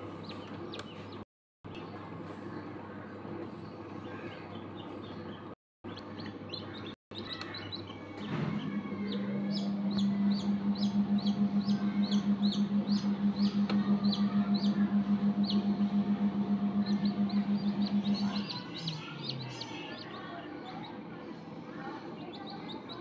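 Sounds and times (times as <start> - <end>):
chicks peeping: 0.0 - 2.0, 3.5 - 21.0
pulsing low hum: 8.3 - 19.9.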